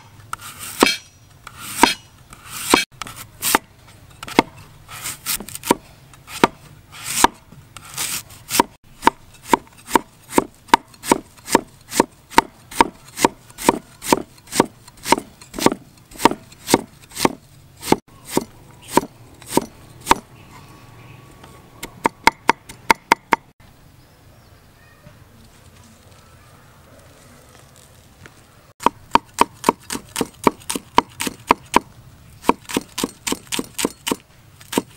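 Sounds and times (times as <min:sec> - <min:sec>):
cleaver chopping on wooden board: 0:00.7 - 0:01.0, 0:01.7 - 0:02.0, 0:02.6 - 0:02.9, 0:04.2 - 0:04.6, 0:05.3 - 0:20.3, 0:21.8 - 0:23.5, 0:28.8 - 0:34.9.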